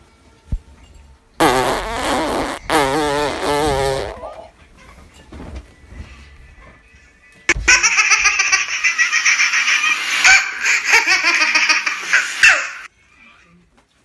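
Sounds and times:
high-pitched pulsing laughter: 0:07.5 - 0:12.9.

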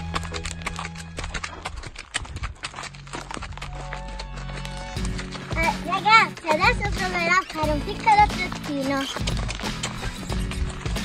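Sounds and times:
background music: 0:00.0 - 0:01.5, 0:03.6 - 0:11.0
horse hoofbeats on dirt: 0:00.0 - 0:11.0.

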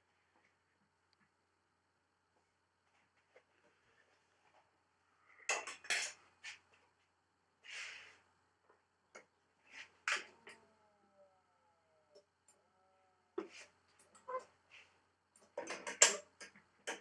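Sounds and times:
faint falling whine: 0:10.1 - 0:14.3
clicks and clacks of clamps: 0:15.4 - 0:17.0.

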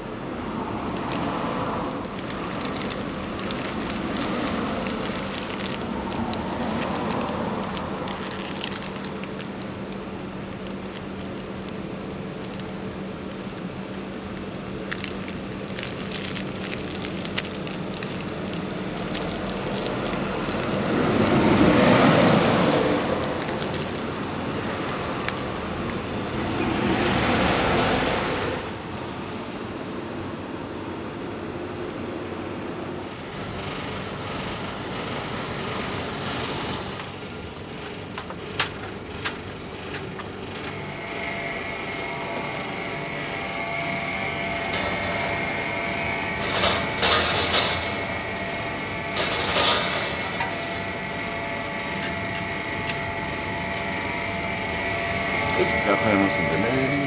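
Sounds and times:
road traffic: 0:00.0 - 0:57.0
paper wrapper crinkling: 0:00.9 - 0:26.3
vehicle passing loudly: 0:19.2 - 0:28.9.

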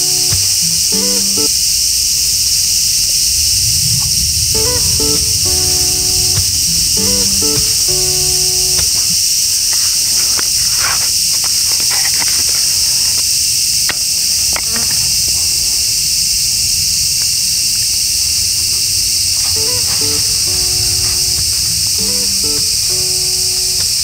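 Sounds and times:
low rumbling haze: 0:00.0 - 0:10.7, 0:15.2 - 0:24.0
shrill insect chorus: 0:00.0 - 0:24.0
faint crackles: 0:03.0 - 0:13.4, 0:18.3 - 0:24.0.

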